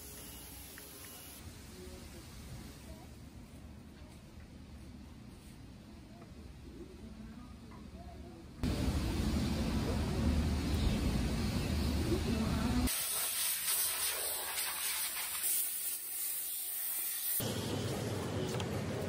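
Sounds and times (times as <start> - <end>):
compressed air blow gun hissing: 12.9 - 17.4.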